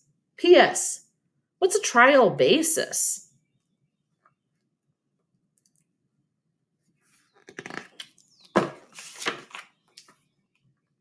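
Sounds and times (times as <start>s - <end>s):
book pages rustling: 7.1s - 10.3s
book knocking down: 8.5s - 9.6s.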